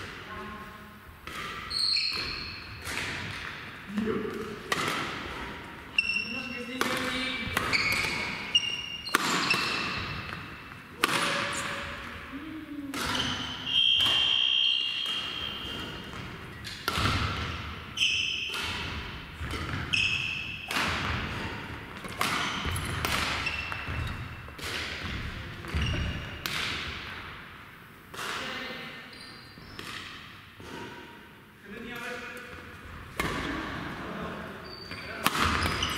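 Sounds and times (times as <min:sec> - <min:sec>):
rackets hitting shuttlecock: 0:01.2 - 0:12.3, 0:12.9 - 0:27.4, 0:28.1 - 0:28.6, 0:29.7 - 0:31.2, 0:32.0 - 0:33.9, 0:34.9 - 0:35.9
shoe squeaks on court floor: 0:01.7 - 0:02.8, 0:05.9 - 0:10.1, 0:13.1 - 0:15.8, 0:18.0 - 0:18.5, 0:19.8 - 0:20.7, 0:22.4 - 0:24.4, 0:25.7 - 0:26.4, 0:29.1 - 0:29.8, 0:34.6 - 0:35.9.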